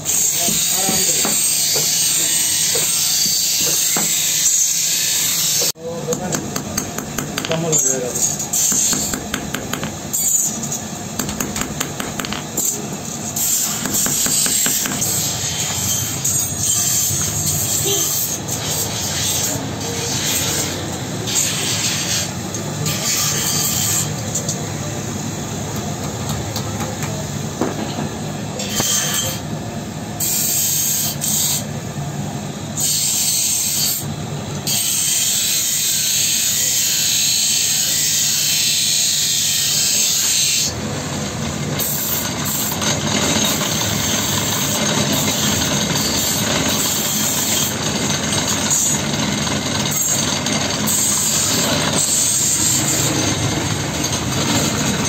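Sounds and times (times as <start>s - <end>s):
drill press motor humming: 13.6s - 16.2s.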